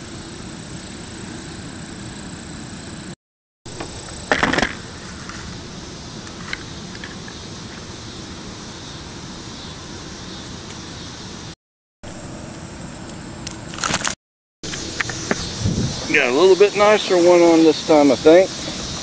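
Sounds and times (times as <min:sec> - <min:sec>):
steady hiss: 0:14.7 - 0:19.0.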